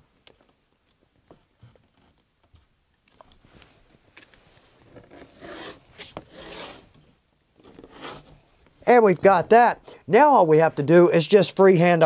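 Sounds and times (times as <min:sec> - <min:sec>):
knife cutting leather: 0:05.1 - 0:07.0, 0:07.6 - 0:08.4.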